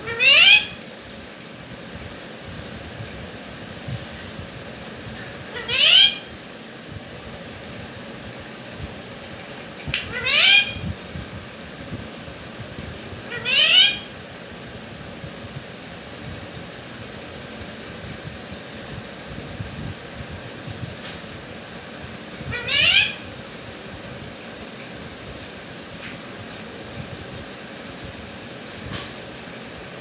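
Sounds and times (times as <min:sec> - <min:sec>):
parakeet rising calls: 0:00.0 - 0:00.8, 0:05.5 - 0:06.4, 0:09.9 - 0:11.0, 0:13.2 - 0:14.2, 0:22.4 - 0:23.4.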